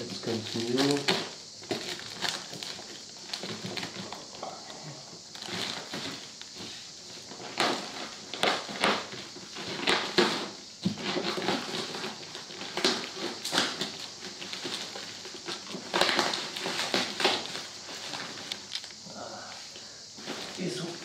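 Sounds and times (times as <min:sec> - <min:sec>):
plastic bag tearing: 0:00.0 - 0:04.2
plastic bag crinkling: 0:00.0 - 0:04.5.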